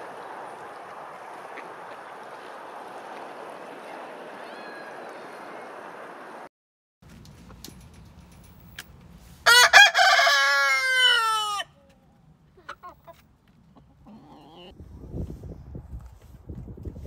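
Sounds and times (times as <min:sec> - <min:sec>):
rooster crowing: 0:09.4 - 0:11.8
faint hen clucks: 0:11.1 - 0:14.8.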